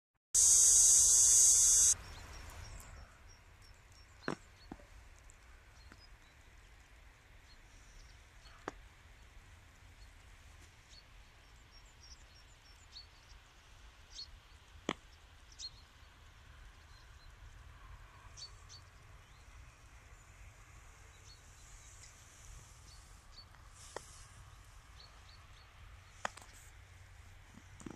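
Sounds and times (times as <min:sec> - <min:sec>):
sharp ticks: 0:00.4 - 0:02.0
faint high-pitched bird chirps: 0:00.4 - 0:05.0.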